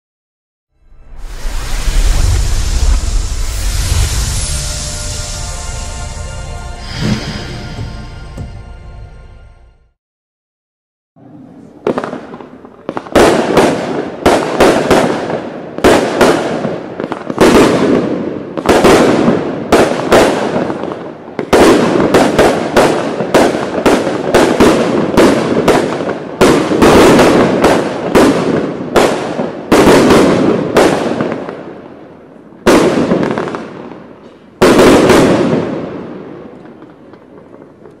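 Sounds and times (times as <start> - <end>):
firework bangs with echo: 11.8 - 31.9, 32.6 - 38.0.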